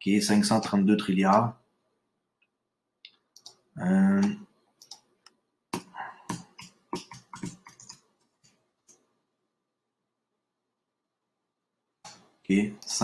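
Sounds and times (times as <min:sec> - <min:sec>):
computer keyboard typing: 0:03.4 - 0:03.6, 0:04.2 - 0:05.1, 0:05.8 - 0:09.0.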